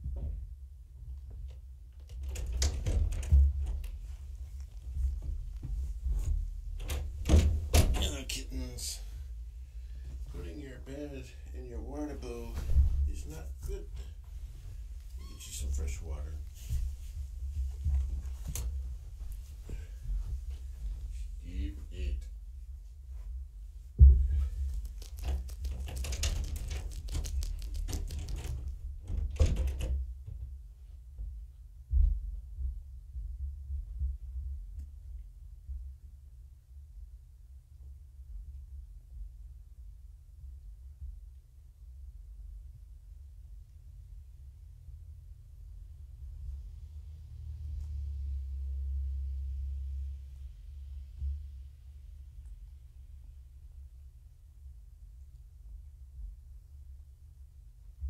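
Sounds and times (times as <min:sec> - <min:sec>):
taps and thumps on microphone: 0:24.0 - 0:30.5
scratchy rustling and clicking: 0:24.4 - 0:29.8
low rumble: 0:30.4 - 0:58.0.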